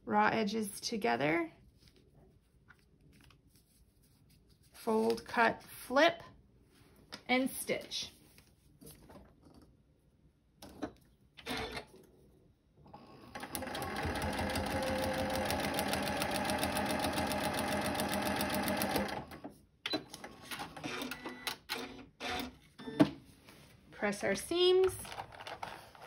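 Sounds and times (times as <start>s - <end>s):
sewing machine stitching: 11.4s - 11.9s, 13.3s - 19.5s.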